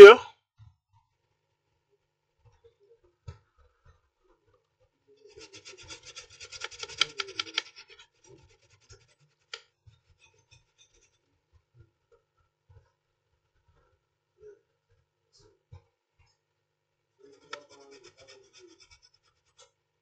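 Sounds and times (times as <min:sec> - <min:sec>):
brush scrubbing circuit board: 0:05.2 - 0:11.3, 0:17.2 - 0:19.8.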